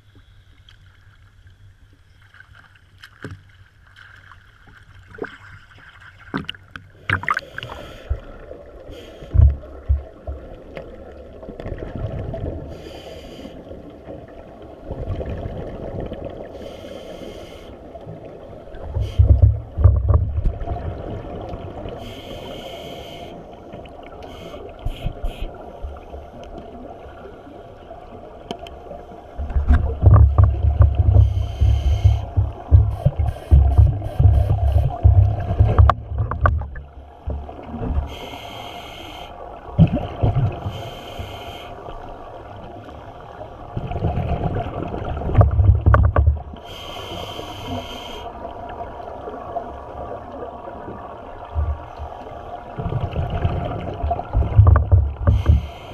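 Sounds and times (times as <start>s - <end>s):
exhaled bubbles rumbling underwater: 5.0s - 13.1s, 13.7s - 17.0s, 17.8s - 22.8s, 23.4s - 38.5s, 39.4s - 55.9s
hissing regulator breaths: 12.7s - 13.7s, 16.6s - 17.8s, 22.0s - 23.6s, 31.1s - 35.0s, 38.0s - 39.4s, 40.6s - 41.8s, 46.6s - 48.4s, 55.2s - 55.9s.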